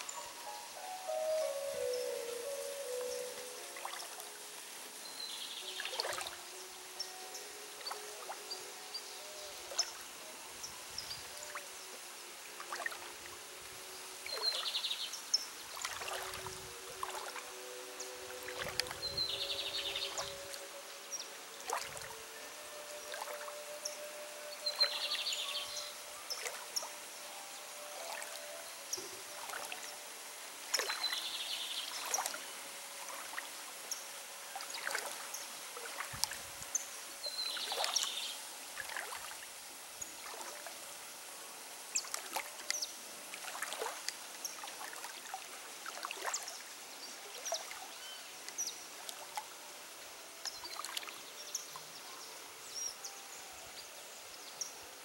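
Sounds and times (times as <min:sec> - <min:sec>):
birds chirping: 0:00.0 - 0:04.2, 0:14.3 - 0:27.0
water trickling: 0:00.0 - 0:52.9.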